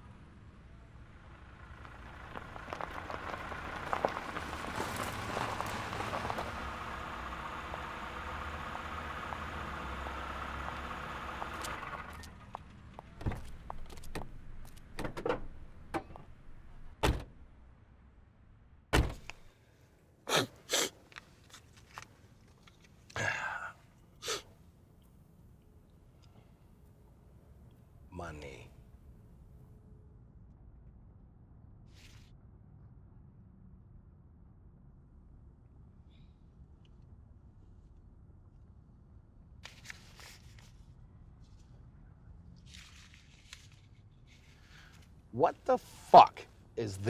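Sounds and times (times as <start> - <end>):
car engine running: 1.0 - 14.6
car doors opening and shutting: 11.5 - 17.5, 18.9 - 19.5.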